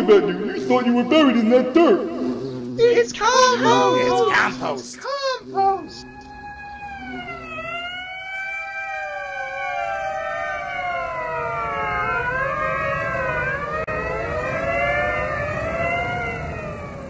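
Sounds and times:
ambulance sirens wailing: 0:05.6 - 0:17.0.

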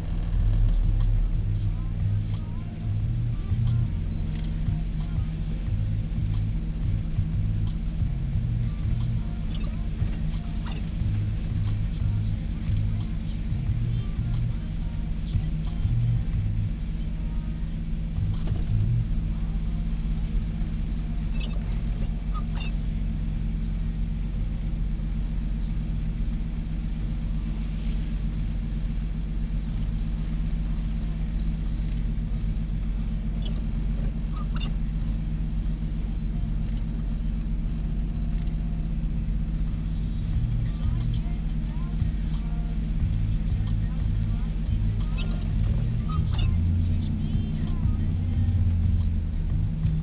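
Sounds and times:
car engine and tyre rumble: 0:00.0 - 0:50.0
faint high squeaks: 0:09.4 - 0:11.0, 0:21.2 - 0:22.9, 0:33.4 - 0:34.9, 0:45.0 - 0:48.0.

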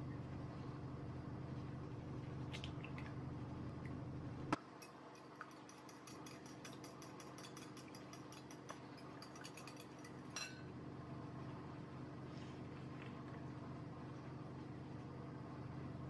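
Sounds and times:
fork clinking against glass bowl: 0:04.8 - 0:10.7.

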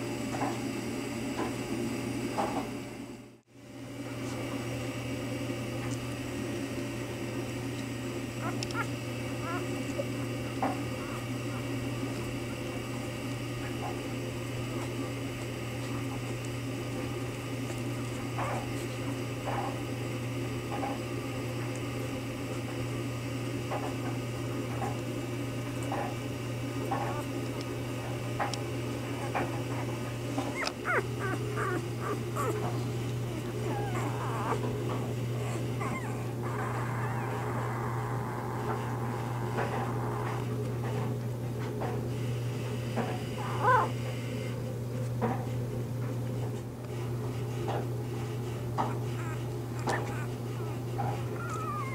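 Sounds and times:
steady low hum: 0:00.0 - 0:51.9
puppies squeaking and whimpering: 0:08.4 - 0:12.5, 0:26.8 - 0:27.4, 0:29.1 - 0:38.1, 0:43.4 - 0:44.0, 0:48.8 - 0:51.9.

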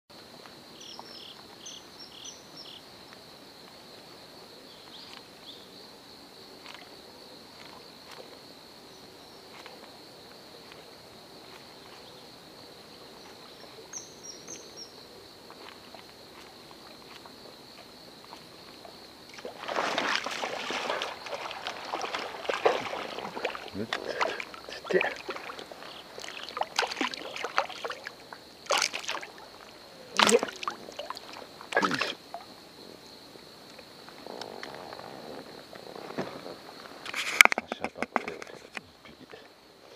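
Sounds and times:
fish splashing in water: 0:19.3 - 0:32.4.

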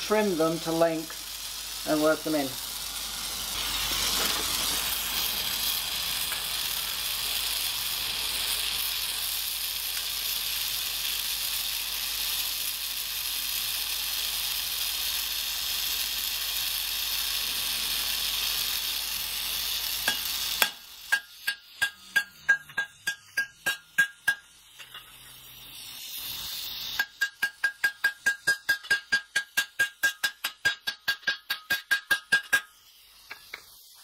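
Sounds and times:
gas torch hissing: 0:00.0 - 0:34.0
hammer striking rivet on anvil: 0:20.1 - 0:25.0, 0:27.0 - 0:32.7.

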